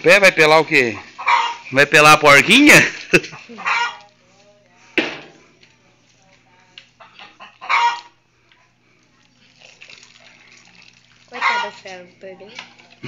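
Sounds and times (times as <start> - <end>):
chicken clucking: 1.1 - 1.7, 3.4 - 4.1, 7.0 - 8.2, 11.3 - 11.8
chicken squawking: 1.2 - 1.7, 3.5 - 4.0, 7.1 - 8.2, 11.3 - 11.8.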